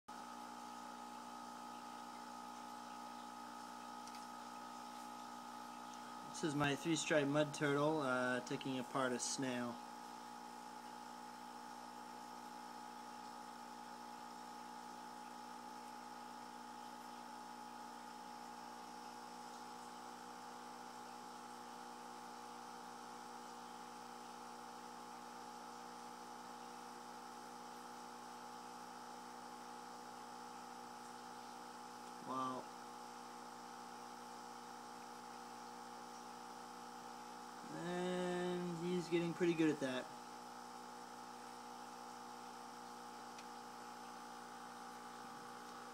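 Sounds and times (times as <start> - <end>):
electrical hum: 0.1 - 45.9.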